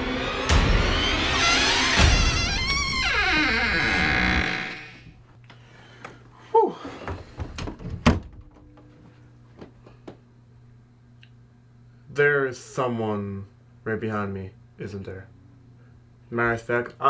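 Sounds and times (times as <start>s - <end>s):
music: 0.0s - 5.0s
faint room hum: 2.3s - 17.0s.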